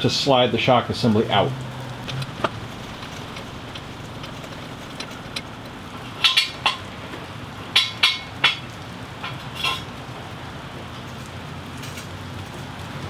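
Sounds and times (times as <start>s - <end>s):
low steady hum: 1.2s - 7.2s.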